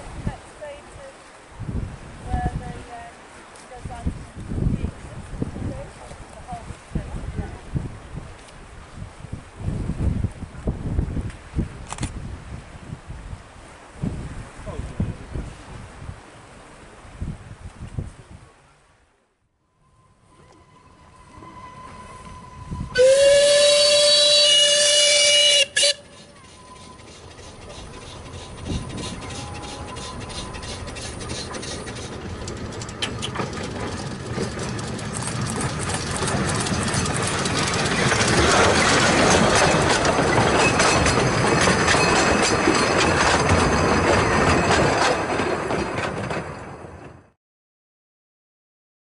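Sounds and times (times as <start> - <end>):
steam locomotive whistle: 19.9 - 31.5
locomotive exhaust beats: 20.1 - 47.2
train wheels on rails: 20.3 - 47.4.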